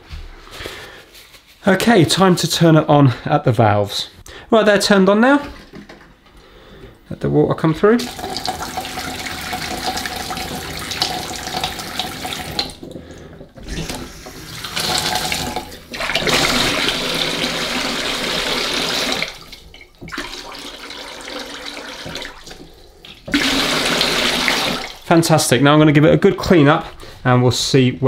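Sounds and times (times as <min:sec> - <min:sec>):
tap water running into sink: 0:08.0 - 0:25.1.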